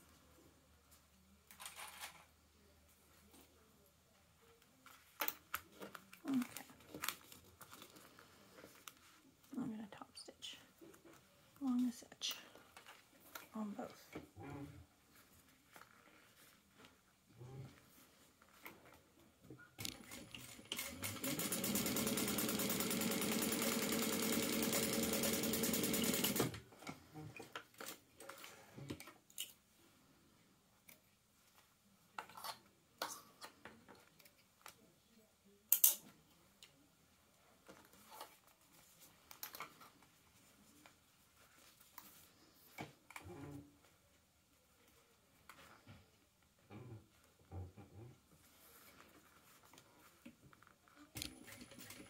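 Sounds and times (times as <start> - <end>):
small clicks and handling sounds: 0.9 - 2.3, 4.5 - 9.1, 26.8 - 29.6, 30.8 - 34.9, 35.7 - 36.8, 37.6 - 41.0, 48.8 - 52.0
sewing machine stitching: 19.8 - 26.6.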